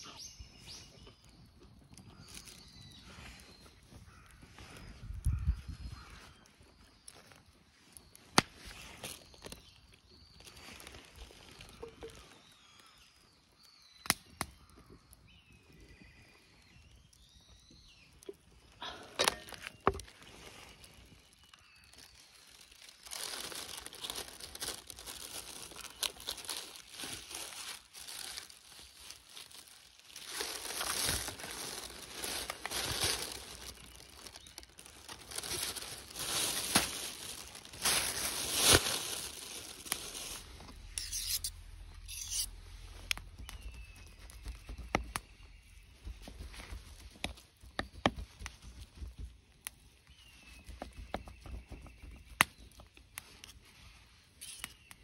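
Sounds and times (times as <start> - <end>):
plastic film crinkling and tearing: 7.0 - 12.5, 19.4 - 45.2.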